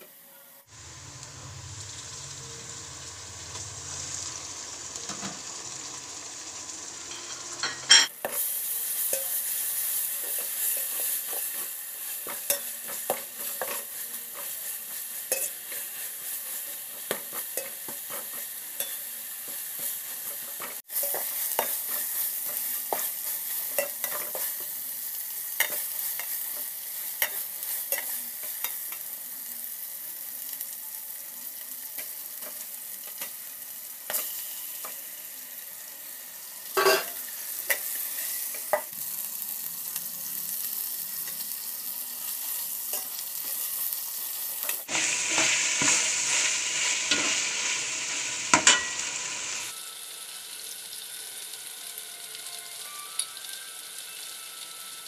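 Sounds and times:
onions sizzling in oil: 0.0 - 55.0
metal spatula scraping pot: 44.9 - 49.7.

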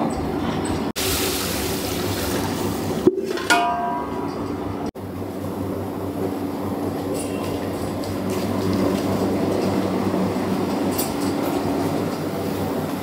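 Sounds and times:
kitchen low rumble: 0.0 - 13.0
metal vessel clanging: 3.0 - 4.6.

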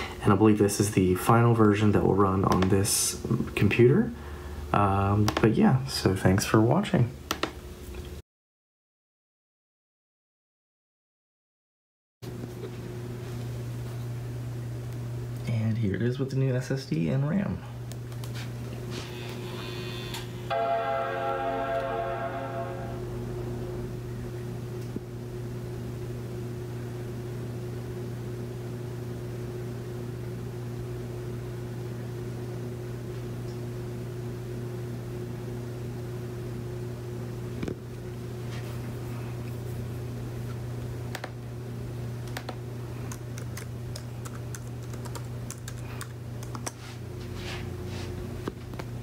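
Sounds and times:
steady low hum: 0.0 - 8.2, 12.2 - 49.0
keyboard keys clicking: 42.3 - 46.8.

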